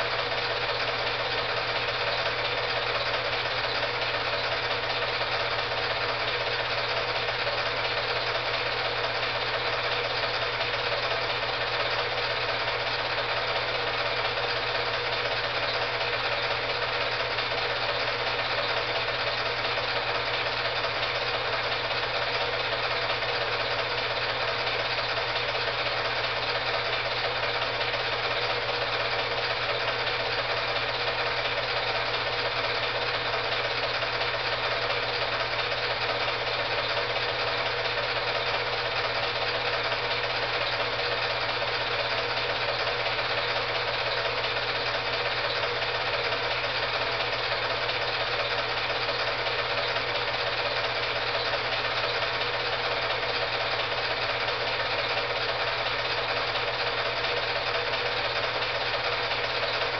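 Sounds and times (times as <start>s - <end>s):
film projector whirring: 0.0s - 59.9s.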